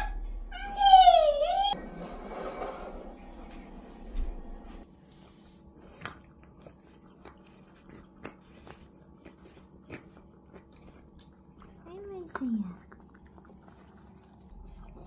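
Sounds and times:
cat eating wet food: 5.6s - 15.0s.

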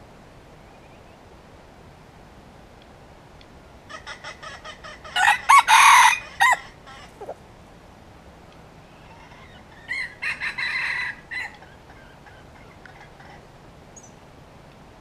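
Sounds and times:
rooster crowing: 5.1s - 7.4s, 9.0s - 11.8s.

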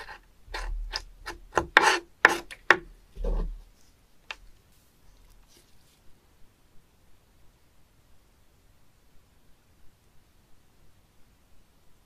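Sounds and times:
knife knocking on wooden board: 0.9s - 3.6s.

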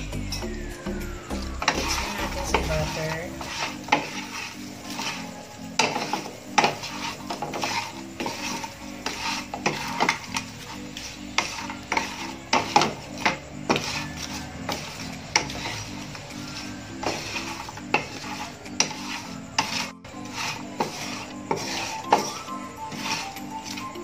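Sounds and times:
light sizzle: 0.0s - 24.0s
wooden spatula scraping a pan: 1.6s - 24.0s.

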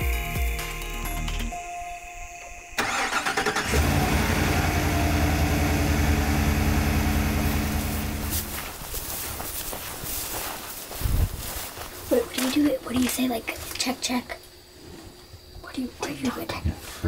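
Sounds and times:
truck engine cranking and idling: 2.8s - 8.7s.

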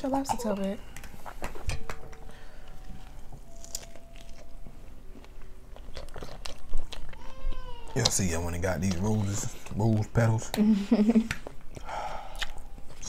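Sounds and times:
chewing: 2.7s - 10.0s, 11.3s - 13.0s.

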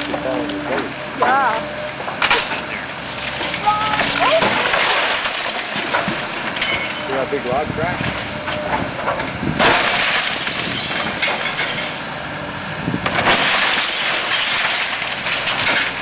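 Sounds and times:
excavator engine running: 0.0s - 16.0s
wooden house crashing down: 4.0s - 7.0s, 9.6s - 11.9s, 13.1s - 16.0s.

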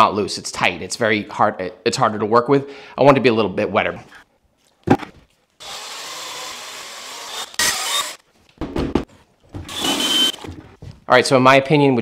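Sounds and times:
cordless drill mixing compound: 5.6s - 8.2s, 9.6s - 10.6s
knocks: 8.6s - 9.8s.

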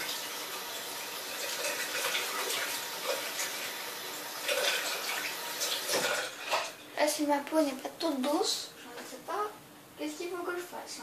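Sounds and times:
tap water running: 0.0s - 7.4s.

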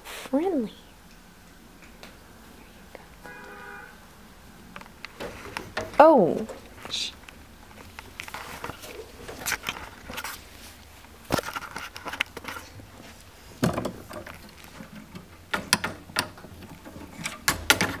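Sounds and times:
rustling: 4.7s - 15.5s
clicks and knocks: 13.6s - 18.0s.

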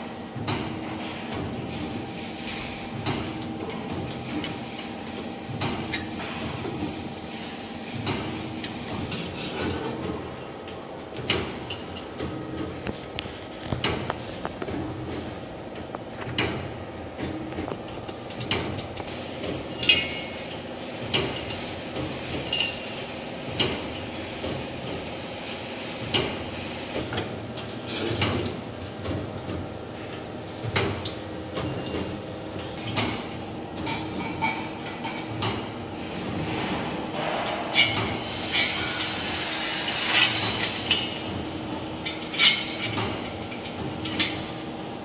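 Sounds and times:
factory hum: 0.0s - 45.0s.

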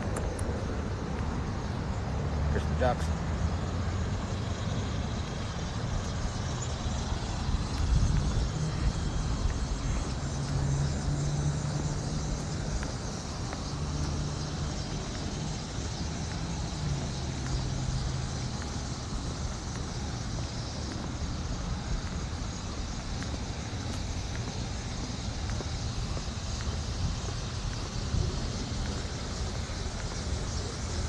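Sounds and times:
low engine-like hum: 0.0s - 31.0s.

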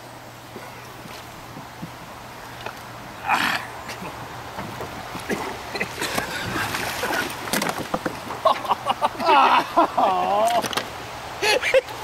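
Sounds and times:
water splashing: 0.4s - 10.7s
knocking on wooden dock: 1.5s - 2.1s.

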